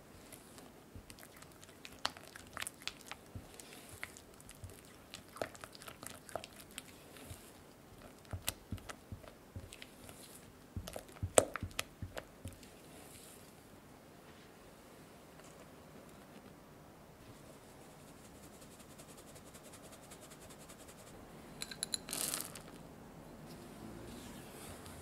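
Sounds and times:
spatula squishing and scraping: 0:00.0 - 0:13.4.

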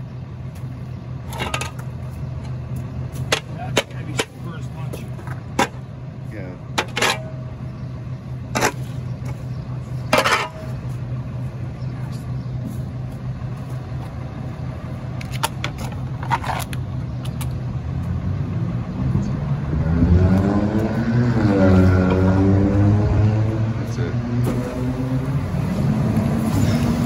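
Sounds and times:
diesel engine idling: 0:00.0 - 0:19.8.

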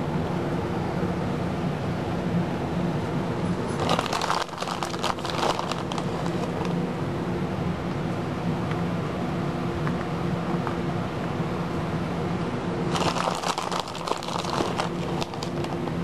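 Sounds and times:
low machine hum: 0:00.0 - 0:16.0
crinkling and rustling clicks: 0:03.8 - 0:06.8, 0:12.9 - 0:15.8.

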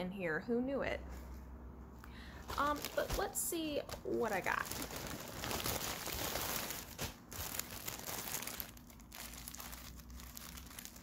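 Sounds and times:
tissue paper crinkling: 0:02.5 - 0:11.0.

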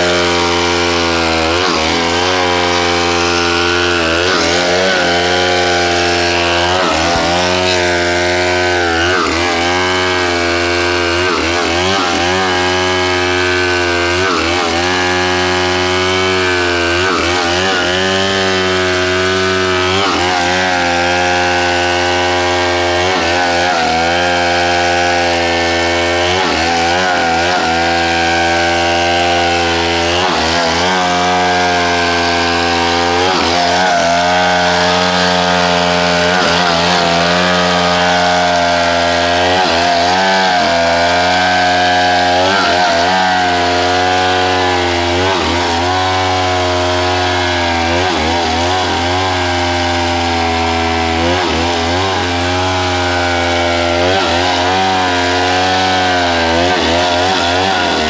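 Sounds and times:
chainsaw cutting log: 0:00.0 - 0:58.0.

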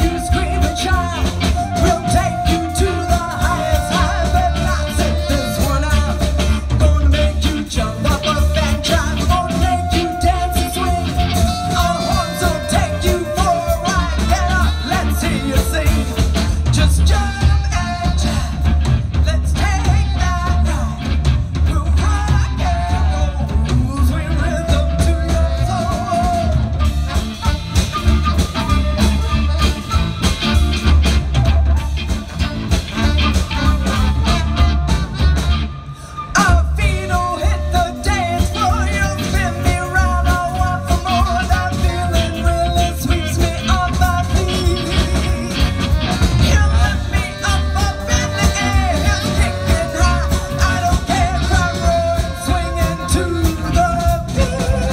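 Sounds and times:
drum kit: 0:00.0 - 0:54.9
electric guitar: 0:00.0 - 0:54.9
heavy bass: 0:00.0 - 0:54.9
saxophone and trombone: 0:00.0 - 0:54.9
woman singing: 0:46.4 - 0:54.9.

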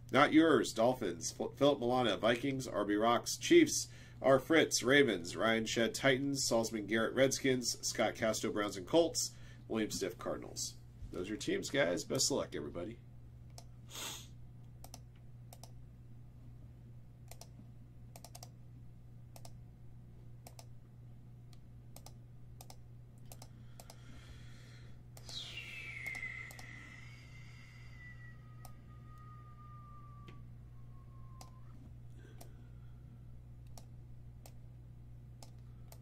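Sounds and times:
low steady hum: 0:00.0 - 0:36.0
keyboard and mouse clicks: 0:14.8 - 0:15.8, 0:17.2 - 0:18.6, 0:19.3 - 0:19.6, 0:20.4 - 0:20.7, 0:21.5 - 0:24.0, 0:26.0 - 0:26.7, 0:31.4 - 0:31.6, 0:33.6 - 0:34.6, 0:35.4 - 0:36.0
high whistling tone sliding lower: 0:25.2 - 0:31.8.

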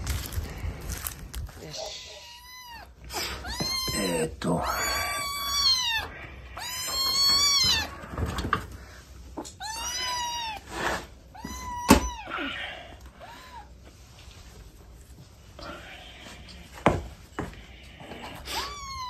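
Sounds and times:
kitten meowing: 0:01.6 - 0:08.0, 0:09.5 - 0:10.7, 0:11.3 - 0:12.6, 0:18.4 - 0:19.0.

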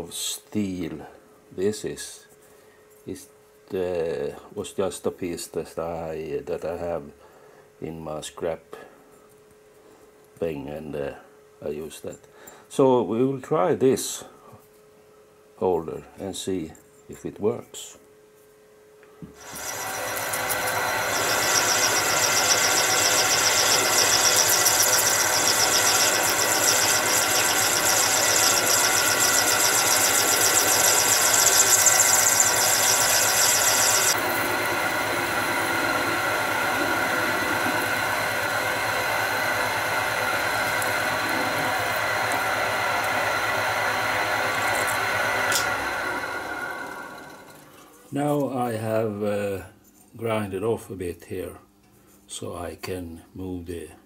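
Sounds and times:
high-pitched cutting squeal: 0:19.4 - 0:42.2
lathe running: 0:19.4 - 0:47.6.

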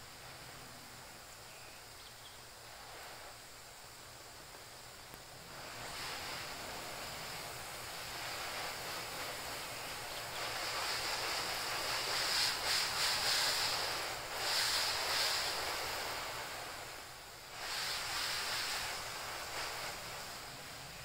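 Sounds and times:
water spraying from hose nozzle: 0:00.0 - 0:21.0.

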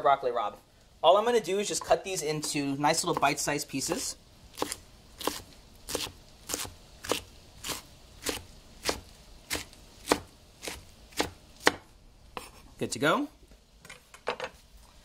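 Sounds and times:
knife chopping on wooden board: 0:04.6 - 0:12.5.

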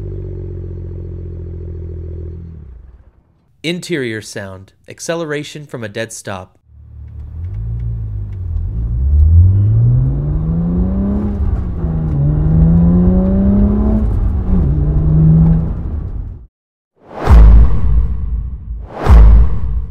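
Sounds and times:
car engine accelerating: 0:00.0 - 0:03.4, 0:06.7 - 0:16.5.

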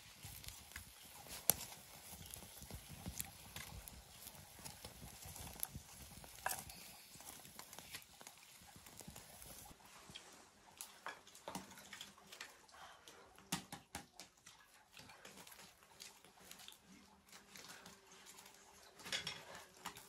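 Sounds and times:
sharp pops from embers: 0:00.0 - 0:09.8
wood fire crackling: 0:00.0 - 0:20.0.

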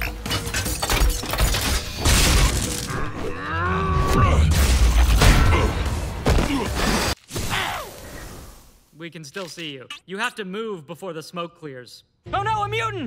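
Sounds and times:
mechanical clanks and whirs: 0:00.0 - 0:02.9
impacts with shattering: 0:00.0 - 0:03.0.

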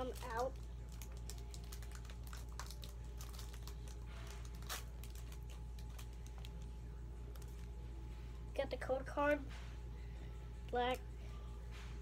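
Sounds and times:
foil pack crinkling and tearing: 0:00.0 - 0:06.7
steady low hum: 0:00.0 - 0:12.0.

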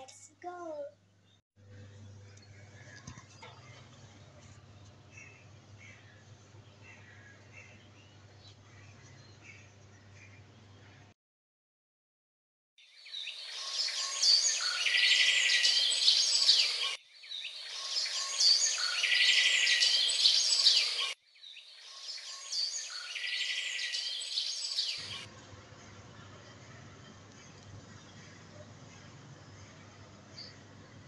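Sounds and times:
birds chirping with trill: 0:12.8 - 0:31.0.

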